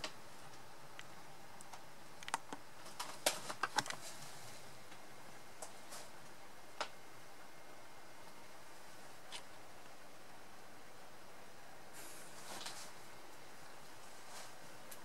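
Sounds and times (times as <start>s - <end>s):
faint hiss: 0.0s - 15.0s
sharp clicks and ticks: 1.0s - 2.6s.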